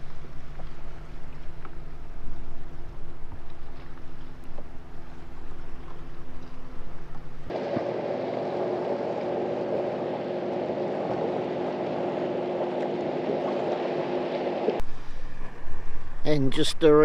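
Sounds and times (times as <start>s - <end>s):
water lapping around a hull: 0.0s - 16.0s
small splashes: 7.5s - 14.8s
water rushing past a boat: 7.5s - 14.9s.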